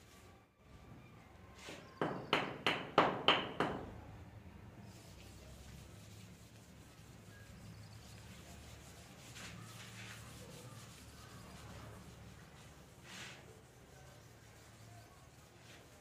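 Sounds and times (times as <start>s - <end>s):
cloth wiping blackboard: 4.9s - 16.0s.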